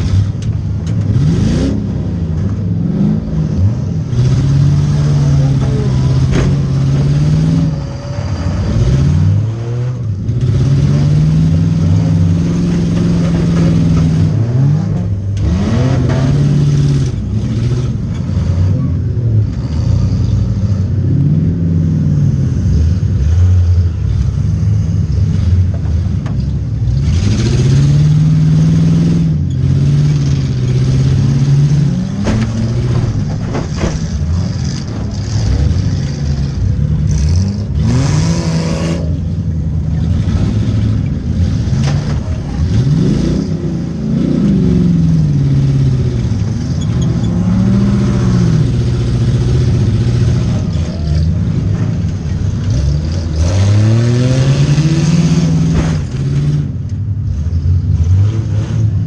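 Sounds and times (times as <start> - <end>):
car engine revving: 0.0 - 59.0.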